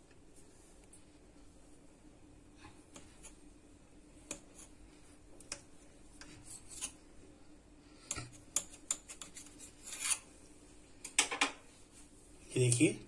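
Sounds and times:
knife cutting dough on stone: 6.2 - 7.0, 8.0 - 10.3.

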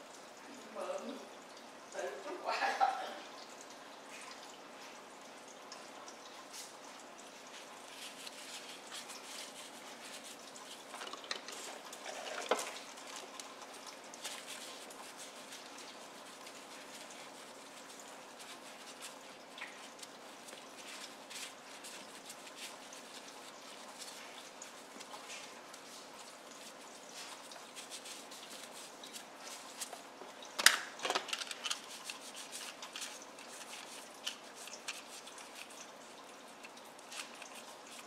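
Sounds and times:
cloth rubbing plastic: 7.5 - 30.0.

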